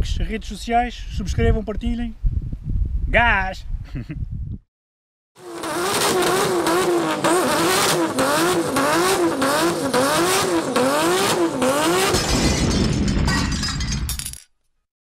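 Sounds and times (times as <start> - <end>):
car engine revving: 5.4 - 12.2.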